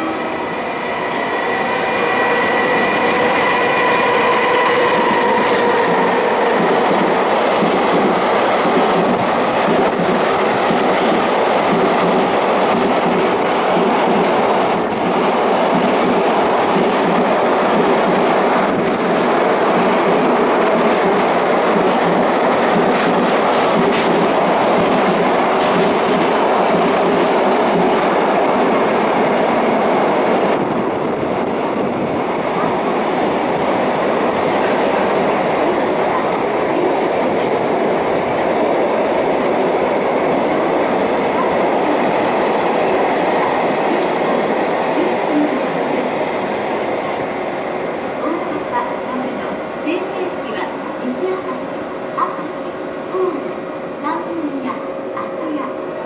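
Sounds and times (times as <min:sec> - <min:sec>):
electric locomotive whine: 0:00.0 - 0:56.0
train wheels clacking over rails: 0:01.3 - 0:30.8.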